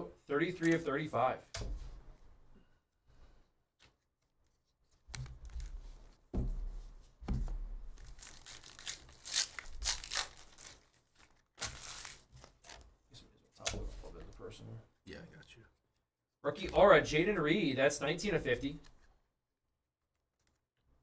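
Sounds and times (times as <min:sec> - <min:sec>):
foil wrapper tearing and crinkling: 0:08.0 - 0:12.8.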